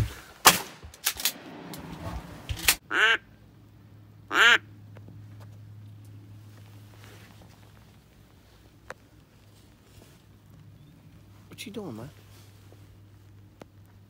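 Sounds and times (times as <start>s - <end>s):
duck quacks: 2.9s - 3.2s, 4.3s - 4.6s.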